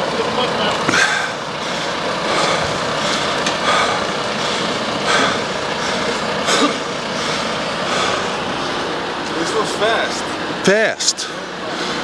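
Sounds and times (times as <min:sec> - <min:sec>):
truck rolling over asphalt: 0:00.0 - 0:10.7.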